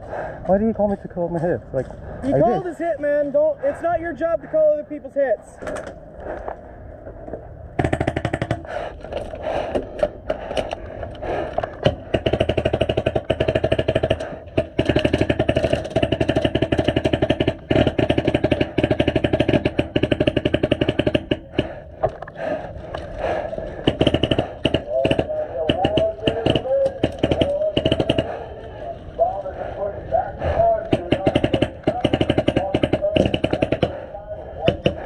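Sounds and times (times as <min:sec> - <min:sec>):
airsoft rifle firing: 0:11.9 - 0:21.8, 0:23.8 - 0:28.5, 0:30.9 - 0:34.0.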